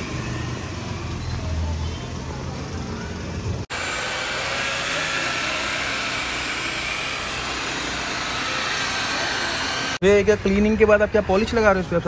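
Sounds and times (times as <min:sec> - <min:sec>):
electric polisher whining: 0:03.7 - 0:10.0.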